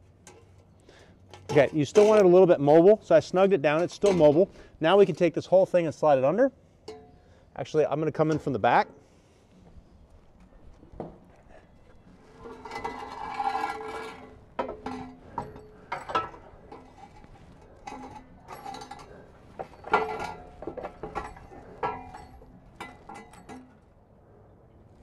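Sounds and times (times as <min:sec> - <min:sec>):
metal pipe ringing: 0:06.8 - 0:07.2, 0:12.4 - 0:23.8
exhaust pipe clanking: 0:12.2 - 0:23.8.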